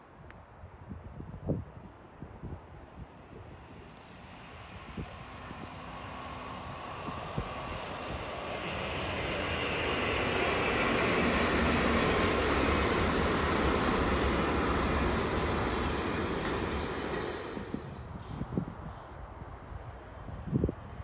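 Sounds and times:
train rumbling past: 3.5s - 20.2s.

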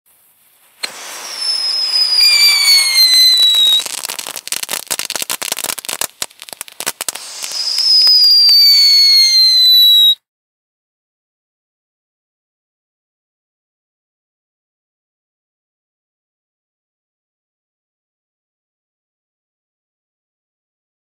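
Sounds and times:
firework crackles: 0.1s - 10.2s
firework fountain whistling: 0.1s - 10.2s.

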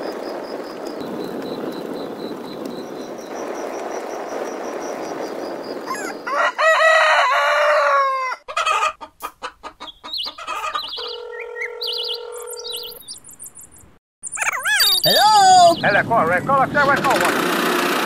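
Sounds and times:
steady rushing noise: 0.0s - 6.3s
rooster crowing: 5.9s - 9.0s
chicken clucking: 8.2s - 13.1s.

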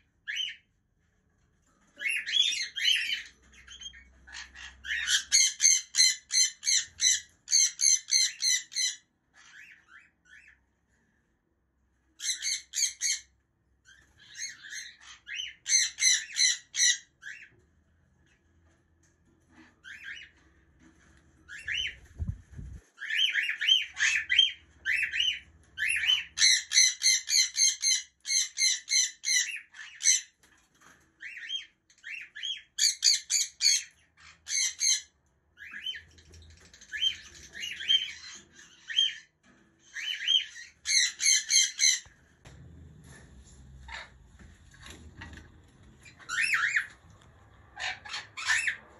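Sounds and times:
parrots squawking: 2.0s - 10.6s, 12.2s - 13.3s, 13.9s - 17.5s, 23.0s - 30.4s, 31.2s - 36.0s, 36.8s - 39.3s, 39.9s - 42.2s, 43.0s - 48.9s.

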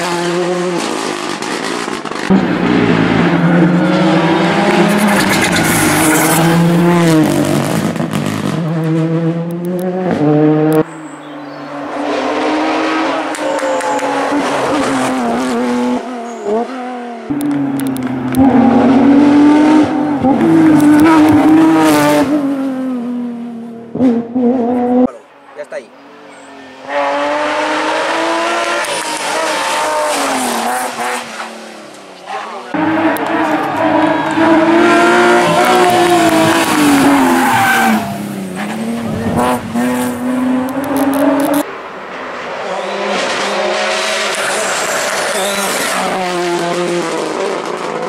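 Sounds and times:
rally car engine accelerating: 0.0s - 25.2s, 26.3s - 48.0s.

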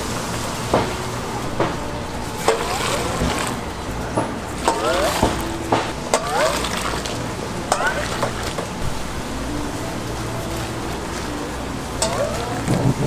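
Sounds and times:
steady hiss: 0.0s - 13.0s
utensils knocking: 0.7s - 9.0s, 12.0s - 13.0s.

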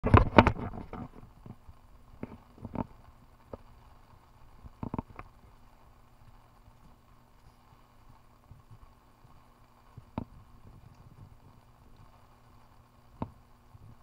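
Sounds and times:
faint steady background noise: 0.0s - 14.0s.

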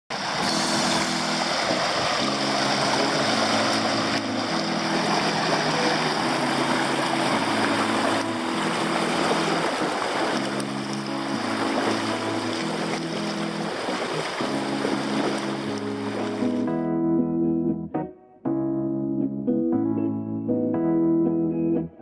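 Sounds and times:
water rushing over rocks: 0.1s - 16.7s
music of low chords: 0.3s - 22.0s.

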